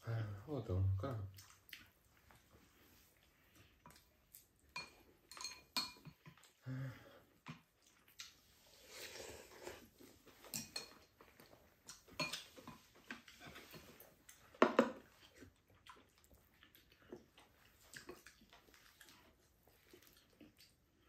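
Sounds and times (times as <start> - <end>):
chewing: 1.3 - 21.0
utensils clinking against bowls: 4.8 - 6.2, 10.4 - 11.0.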